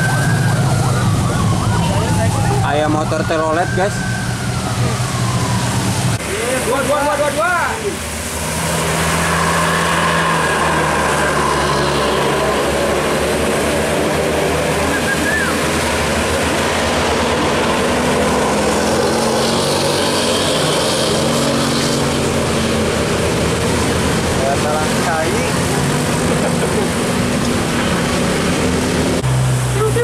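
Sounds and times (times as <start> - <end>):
motorbikes passing: 0.0 - 30.0
road traffic noise: 0.0 - 30.0
bus diesel engine running: 22.1 - 30.0.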